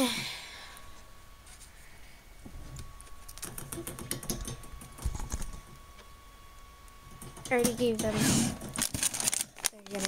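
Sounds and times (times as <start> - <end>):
guinea pigs rustling and clicking: 7.1 - 8.1, 8.7 - 10.0.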